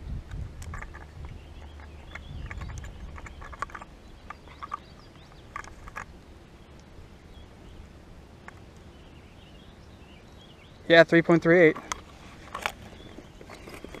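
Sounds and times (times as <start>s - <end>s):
handling clicks and rustles: 0.2s - 7.0s, 11.1s - 14.0s.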